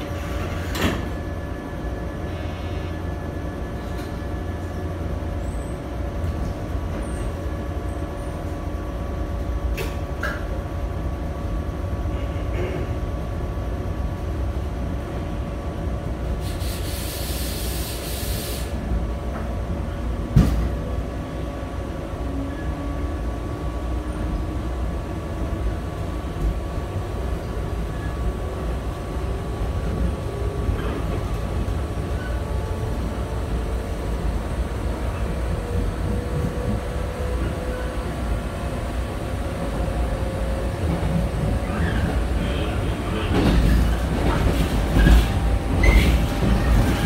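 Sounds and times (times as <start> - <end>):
train running rumble: 0.0 - 47.0.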